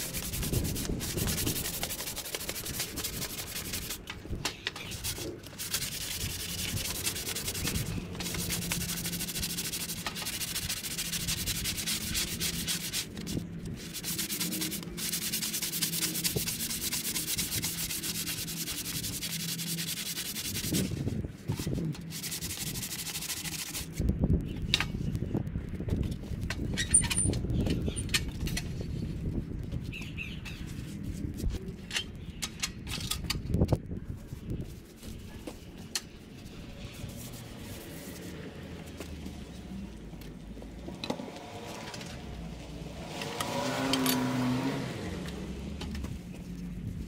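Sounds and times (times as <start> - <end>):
sandpaper rubbing on wood: 0.0 - 4.1, 4.8 - 24.0, 34.3 - 38.4.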